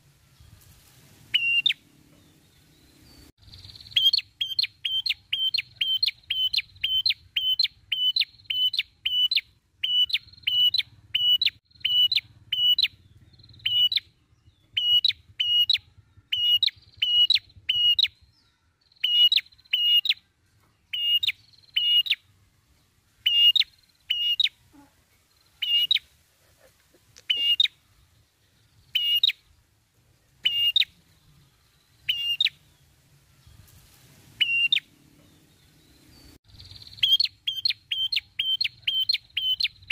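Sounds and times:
bird chipping calls: 0:03.5 - 0:20.2, 0:23.3 - 0:24.9, 0:25.6 - 0:26.1, 0:26.9 - 0:28.0, 0:28.8 - 0:29.4, 0:30.4 - 0:30.9, 0:36.5 - 0:39.9.

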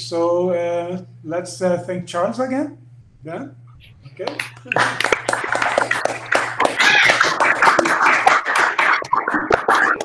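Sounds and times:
people clapping: 0:04.2 - 0:10.0.

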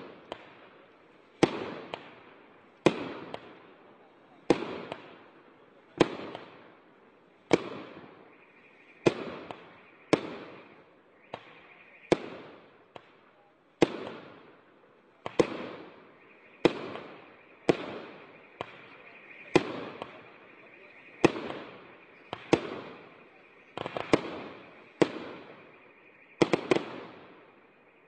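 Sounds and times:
small firework pops: 0:00.0 - 0:02.2, 0:02.8 - 0:06.7, 0:07.4 - 0:08.4, 0:09.0 - 0:14.6, 0:15.2 - 0:27.6
firework bangs: 0:00.0 - 0:27.8.

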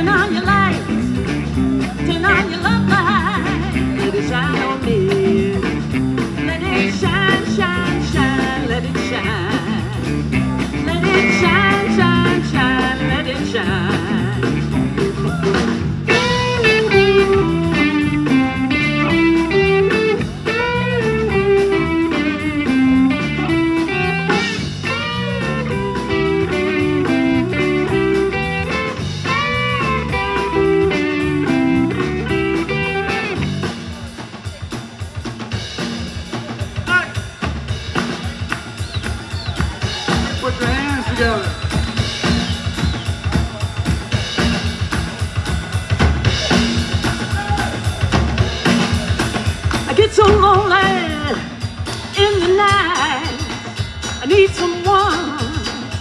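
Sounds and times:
woman singing: 0:00.0 - 0:01.1, 0:01.8 - 0:10.1, 0:10.7 - 0:14.7, 0:49.9 - 0:53.6, 0:54.2 - 0:56.0
drum kit: 0:00.0 - 0:56.0
electric guitars: 0:00.0 - 0:56.0.

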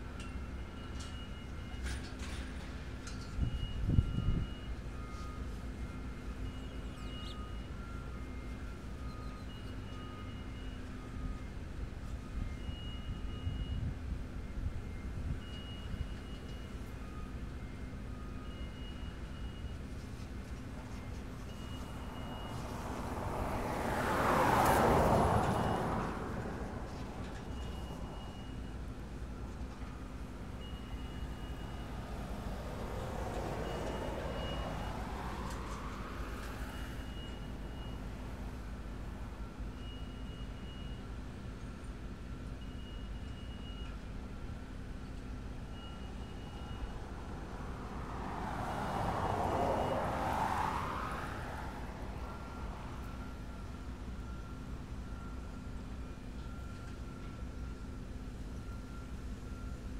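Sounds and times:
vehicle passing by: 0:21.4 - 0:28.4, 0:30.8 - 0:39.4, 0:46.0 - 0:53.8.

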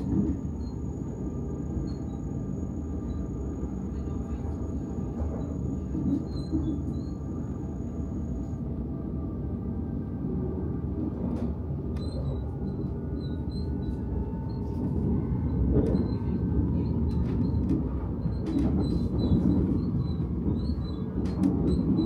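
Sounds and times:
train wheels rumbling on rail: 0:00.0 - 0:09.3, 0:10.0 - 0:22.0
train clicks: 0:17.1 - 0:22.0.

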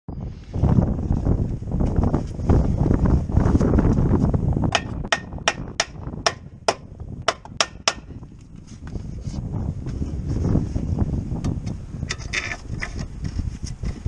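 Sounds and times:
hammer striking metal: 0:04.7 - 0:08.1.

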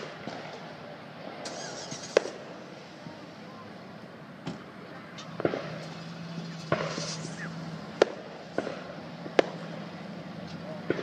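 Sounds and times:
firework shells bursting: 0:01.4 - 0:02.7, 0:04.5 - 0:09.9.

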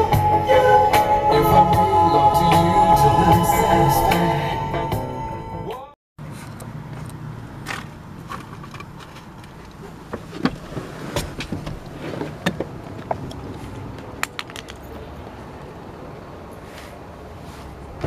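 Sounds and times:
steady low rumble: 0:00.0 - 0:05.5.

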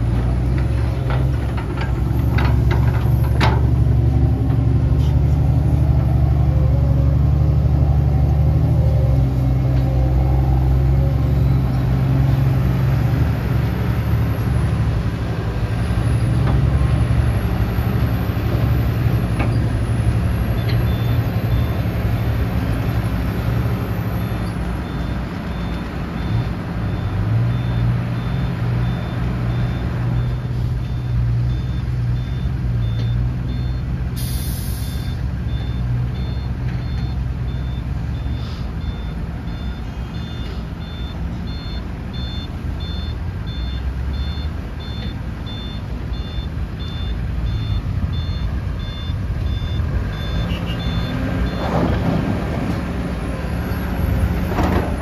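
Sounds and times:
excavator diesel engine: 0:00.0 - 0:55.0
reversing alarm beeping: 0:19.8 - 0:52.0.

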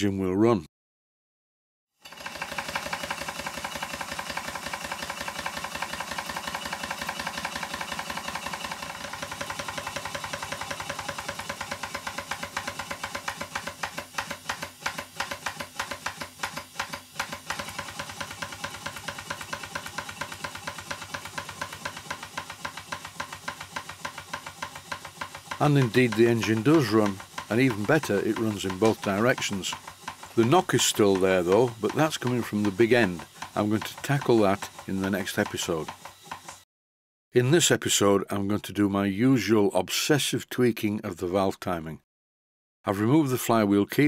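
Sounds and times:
model steam engine chuffing: 0:02.0 - 0:36.6
mechanical knock: 0:09.1 - 0:36.6.

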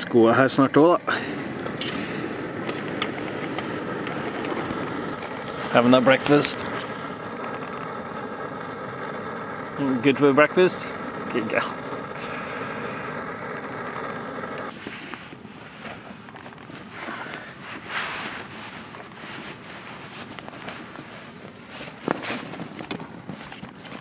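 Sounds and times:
steady hum: 0:00.0 - 0:20.0
wind-like hiss: 0:00.0 - 0:24.0
snow crunching: 0:01.0 - 0:15.8
clothing and tent fabric rustling: 0:14.7 - 0:24.0.

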